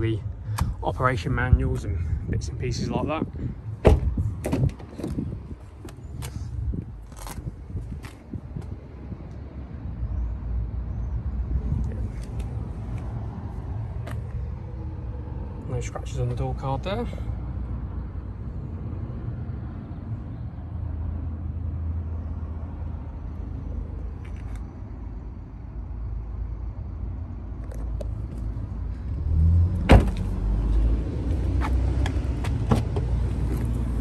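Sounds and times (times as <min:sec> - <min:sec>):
car door shutting: 0:03.8 - 0:05.2, 0:29.8 - 0:30.3, 0:32.4 - 0:33.6.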